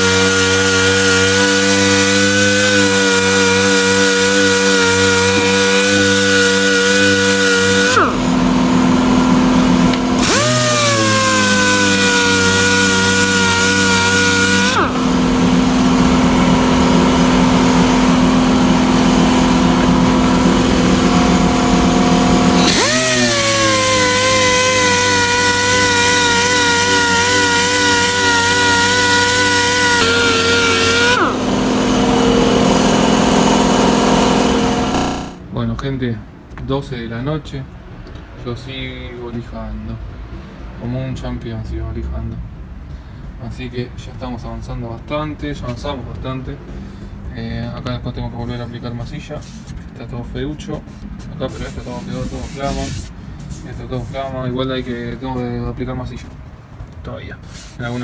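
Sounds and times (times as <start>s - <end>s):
orbital sander running: 0.0s - 35.4s.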